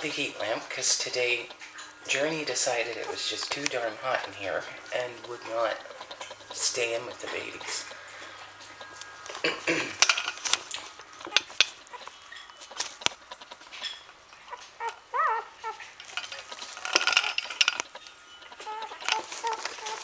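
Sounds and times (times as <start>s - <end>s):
puppies squeaking and grunting: 0.0s - 20.0s
puppy squealing: 2.9s - 3.4s, 11.2s - 12.5s, 13.2s - 16.0s, 17.9s - 20.0s
soft clicks and rustles: 10.0s - 20.0s.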